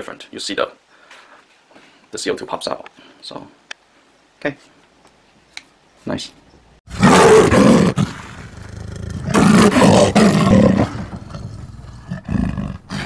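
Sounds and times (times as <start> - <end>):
animal roar: 6.9 - 13.0.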